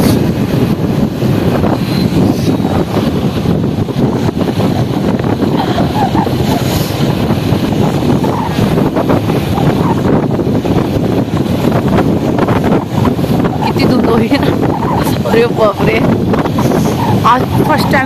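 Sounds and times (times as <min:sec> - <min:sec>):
moving vehicle running noise: 0:00.0 - 0:18.0
wind buffeting microphone: 0:00.0 - 0:18.0.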